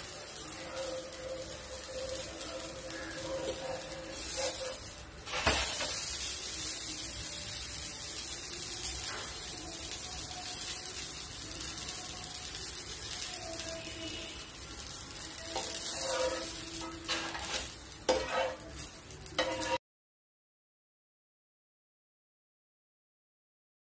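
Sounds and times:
batter sizzling on iron pan: 0:00.0 - 0:19.8
steel spatula clack: 0:15.4 - 0:19.8.

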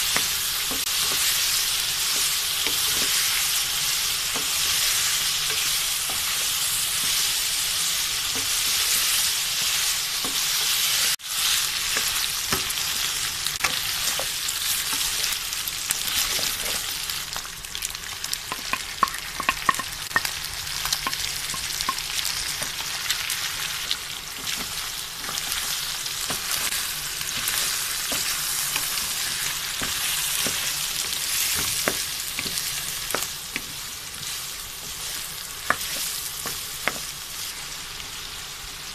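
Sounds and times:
meat sizzling in hot oil: 0:00.0 - 0:38.9
wooden spatula scraping a pan: 0:24.4 - 0:37.6.

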